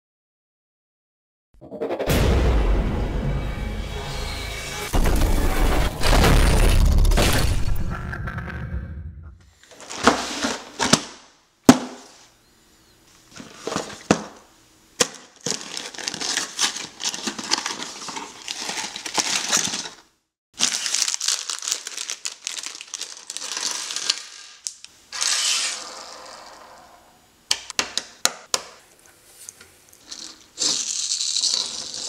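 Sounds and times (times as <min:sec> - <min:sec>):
plastic bag crinkling: 0:15.0 - 0:24.8
cardboard box tearing: 0:15.4 - 0:19.9.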